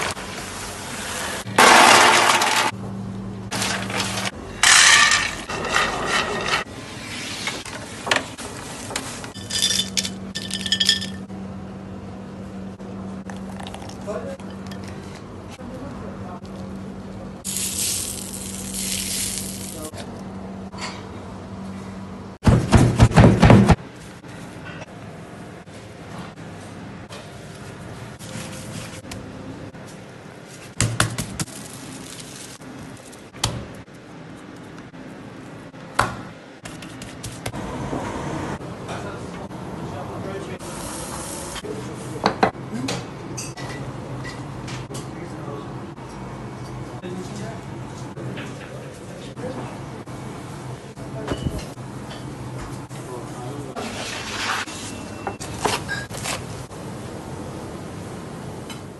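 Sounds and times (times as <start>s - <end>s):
kitchenware clinking: 9.4s - 11.3s
steady background noise: 23.7s - 53.8s.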